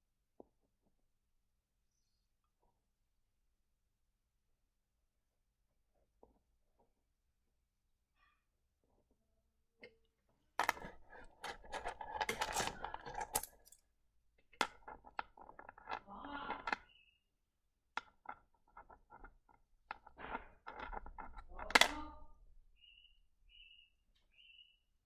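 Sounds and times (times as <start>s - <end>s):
stones clicking and scraping: 10.6s - 13.8s, 14.4s - 17.1s, 18.0s - 22.0s.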